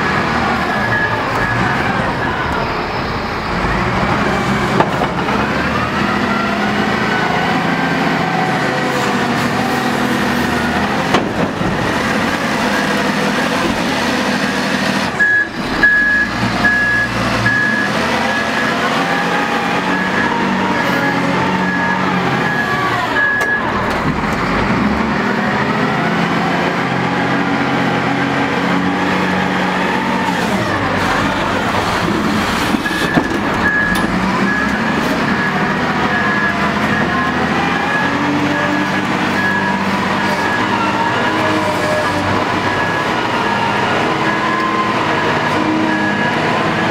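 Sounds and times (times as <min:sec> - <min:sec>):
diesel engine under load: 0:00.0 - 0:46.9
reversing alarm beeping: 0:00.1 - 0:03.8, 0:15.1 - 0:23.8, 0:32.7 - 0:41.6, 0:42.6 - 0:46.9.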